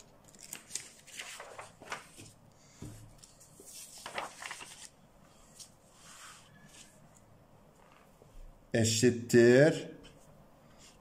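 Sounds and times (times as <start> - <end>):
paper rustling: 0.0 - 7.0.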